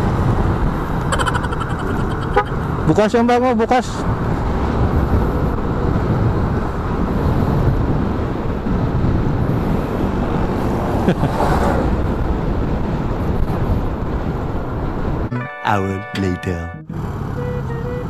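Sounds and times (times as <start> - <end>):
wind rushing over microphone: 0.0 - 15.3
road noise: 0.0 - 18.0.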